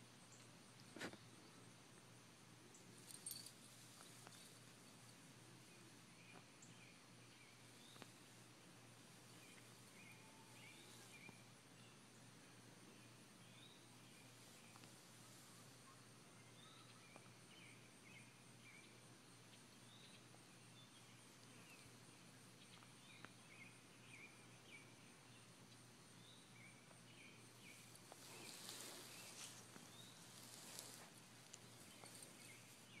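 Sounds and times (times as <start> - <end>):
birds chirping: 26.2 - 33.0
rustling: 27.6 - 33.0.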